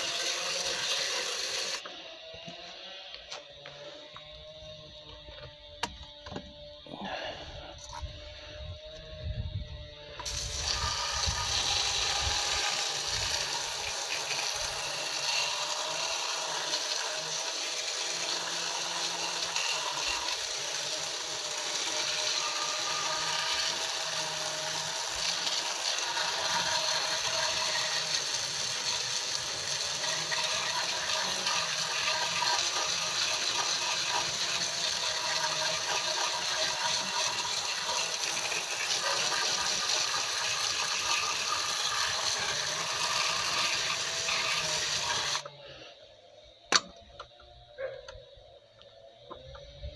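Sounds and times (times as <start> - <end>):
water jet hissing and splashing: 0.0 - 1.8, 10.2 - 45.4.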